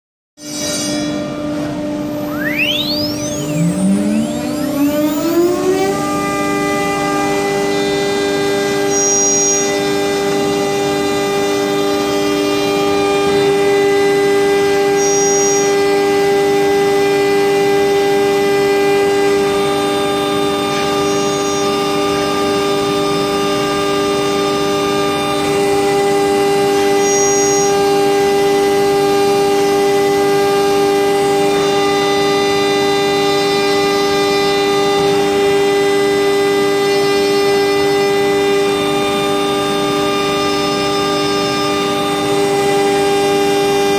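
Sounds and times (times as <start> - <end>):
router spindle whining: 0.4 - 43.9.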